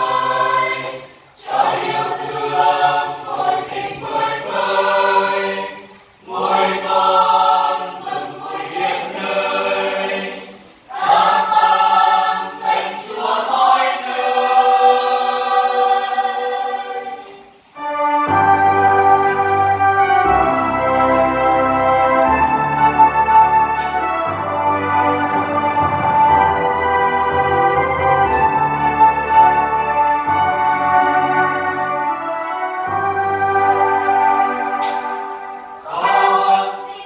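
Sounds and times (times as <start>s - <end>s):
choir singing a hymn: 0.0s - 37.0s.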